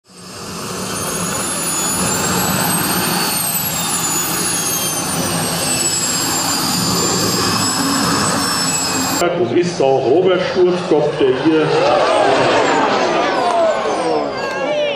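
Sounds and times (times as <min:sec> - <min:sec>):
model jet turbine whining: 0:00.0 - 0:09.2.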